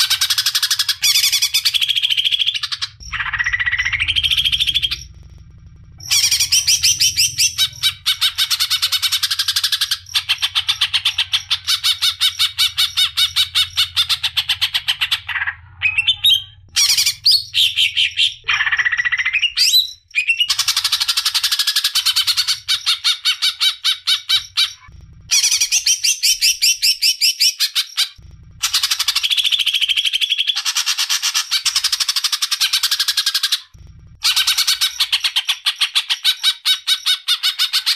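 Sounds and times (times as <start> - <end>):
songbird trilling: 6.0 - 24.8.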